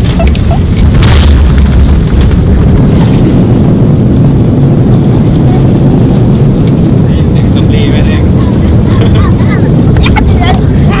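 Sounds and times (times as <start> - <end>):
jet landing roll rumble: 0.0 - 11.0.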